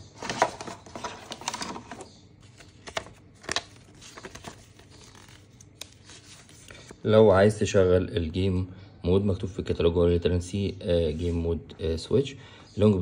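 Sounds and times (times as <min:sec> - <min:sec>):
cardboard and paper rustling: 0:00.0 - 0:06.9.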